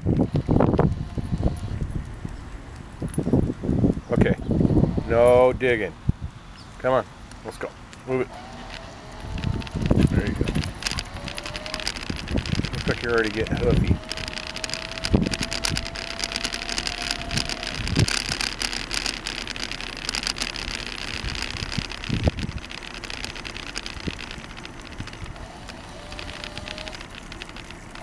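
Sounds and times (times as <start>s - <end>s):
camera handling noise: 8.4s - 28.0s.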